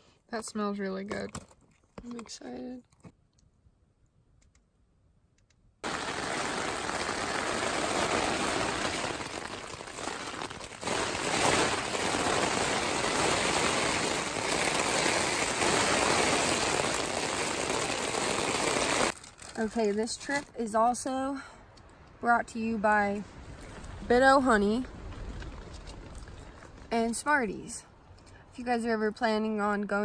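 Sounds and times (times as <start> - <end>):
heavy rain on tent fabric: 5.8 - 19.9.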